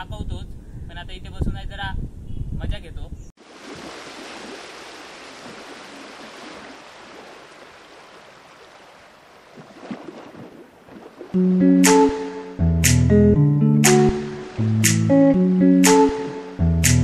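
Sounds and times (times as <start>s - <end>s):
creek water rushing: 3.4s - 11.3s
loud guitar music: 11.4s - 17.0s.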